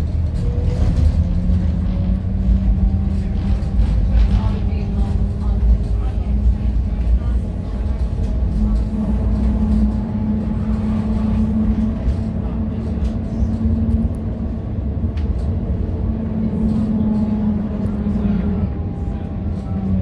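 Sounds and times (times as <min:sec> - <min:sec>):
tram ride rumble: 0:00.0 - 0:20.0.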